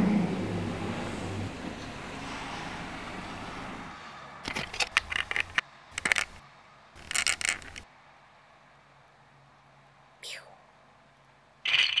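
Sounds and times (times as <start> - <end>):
low street traffic noise: 0.0 - 12.0
sharp crackling clicks: 7.0 - 7.9.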